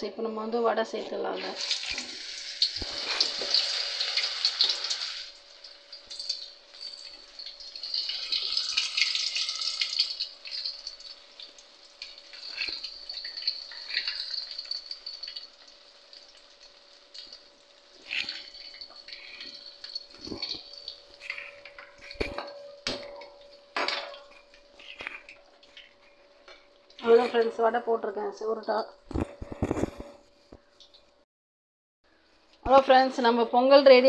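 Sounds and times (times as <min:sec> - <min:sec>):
batter sizzling in hot oil: 0:01.2 - 0:27.6
water splashing and dripping: 0:01.4 - 0:27.0.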